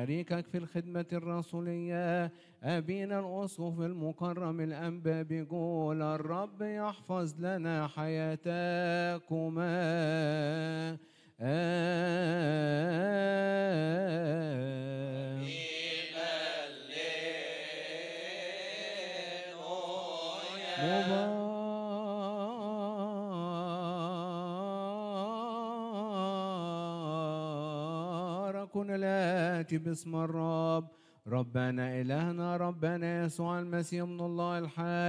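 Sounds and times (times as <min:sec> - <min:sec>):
man chanting: 0:00.0 - 0:35.0.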